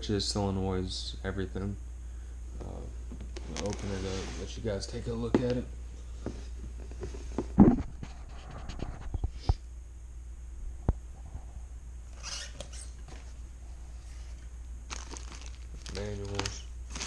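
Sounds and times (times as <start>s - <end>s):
cardboard scraping: 3.4s - 4.8s.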